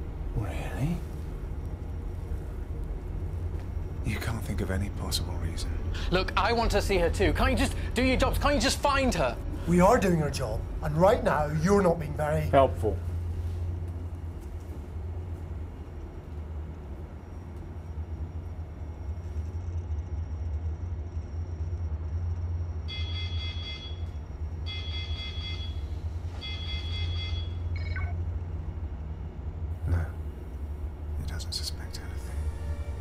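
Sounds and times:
low hum: 0.0 - 33.0
electronic ringing tone: 22.9 - 28.2.

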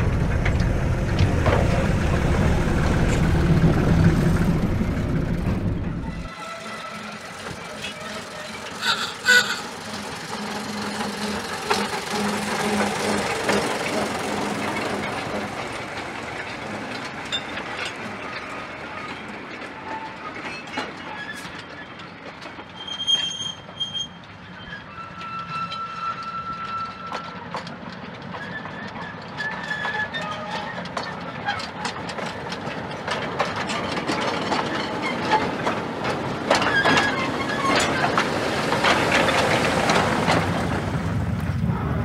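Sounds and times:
locomotive engine passing: 0.0 - 22.8, 23.6 - 42.0
wheels clicking over rail joints: 0.0 - 41.7
short high squeals: 6.0 - 12.7, 22.7 - 27.2.

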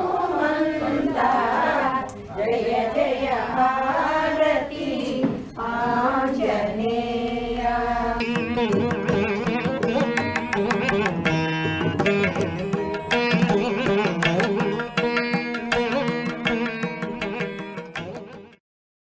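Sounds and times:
hand drum strokes: 8.2 - 18.6
plucked string instrument melody: 8.2 - 18.6.

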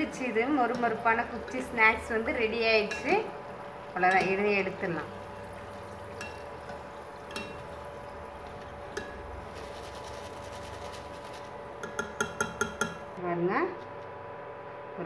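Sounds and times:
faint hum: 0.0 - 15.0
wire strainer clinking on metal pan: 6.2 - 6.5, 7.2 - 7.7.

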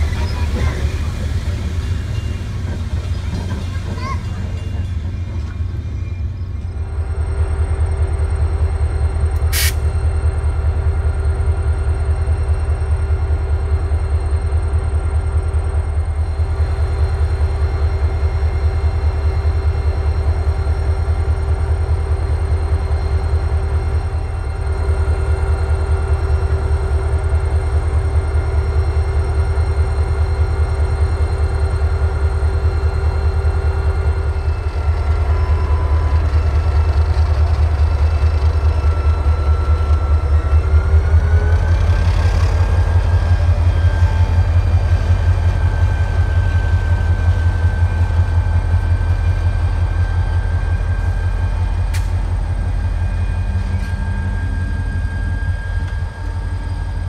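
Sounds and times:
diesel locomotive engines throbbing: 0.0 - 57.0.

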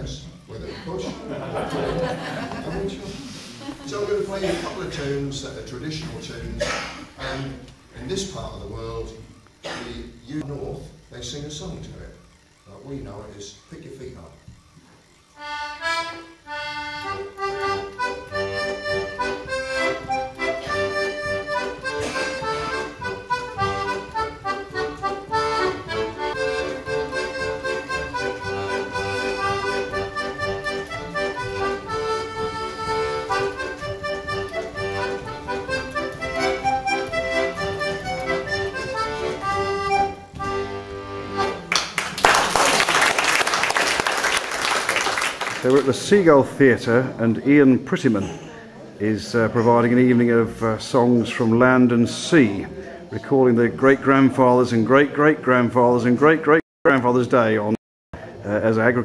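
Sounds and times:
audience applauding: 41.6 - 46.0.

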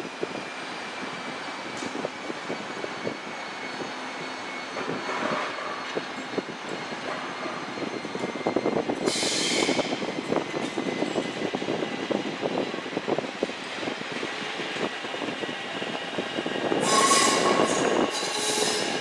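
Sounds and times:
train wheels clicking on rails: 4.8 - 11.6, 13.3 - 19.0.

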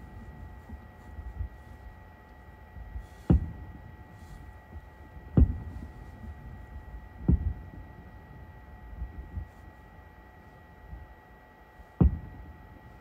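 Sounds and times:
distant fireworks booms: 3.0 - 4.4, 5.3 - 6.4, 12.0 - 12.5.

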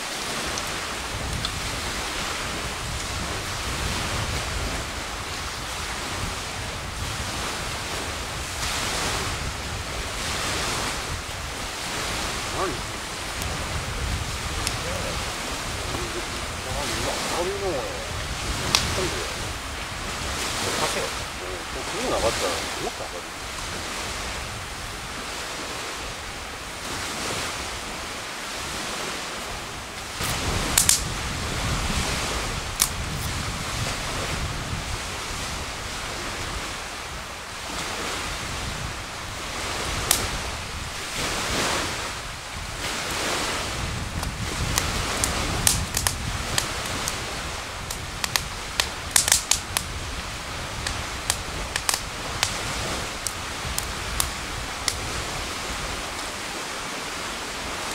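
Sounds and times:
campfire crackling: 0.0 - 57.9
steady rushing hiss: 0.0 - 57.9
fire snaps and pops: 0.4 - 1.8, 12.2 - 17.1, 18.1 - 19.6, 30.2 - 31.2, 32.7 - 33.4, 40.0 - 40.4, 44.0 - 55.2.

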